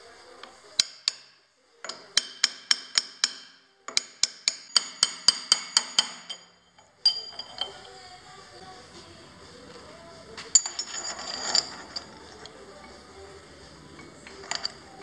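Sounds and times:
hammer striking metal: 0.8 - 7.7.

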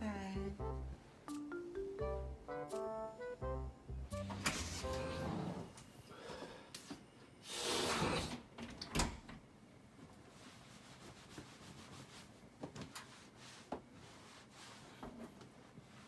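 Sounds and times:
door swish: 4.2 - 5.6.

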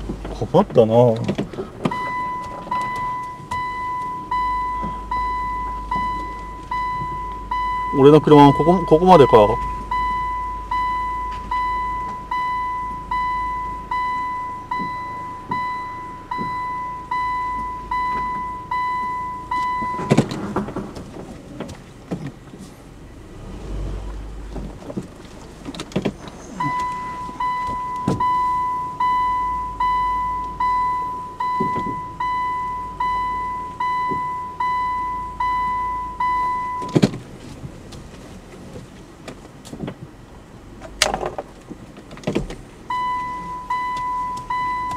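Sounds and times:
car rumbling over rough ground: 0.0 - 44.9
reversing buzzer beeping: 42.9 - 44.9.

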